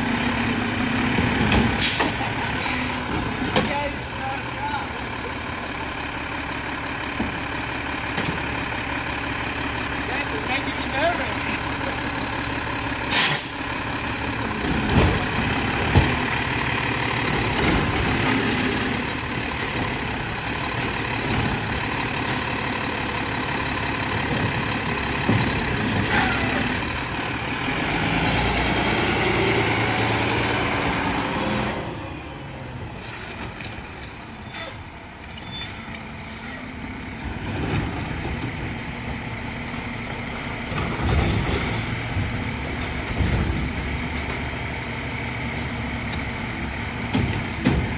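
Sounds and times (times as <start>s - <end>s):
garbage truck running: 0.0s - 47.9s
air brake hiss: 13.1s - 13.6s.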